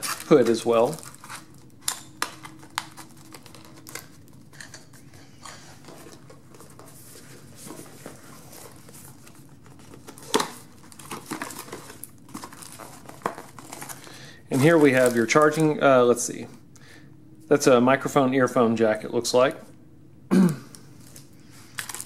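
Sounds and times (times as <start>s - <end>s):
packaging taps and crinkles: 9.7s - 14.0s.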